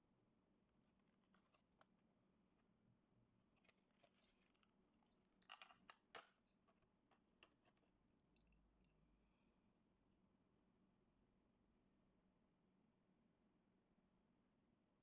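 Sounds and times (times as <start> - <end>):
plastic packaging crinkling: 3.6 - 6.4.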